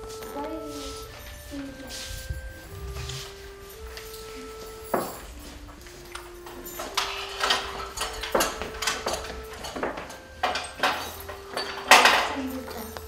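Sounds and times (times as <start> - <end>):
steel pots and dishes clinking: 5.0 - 13.0.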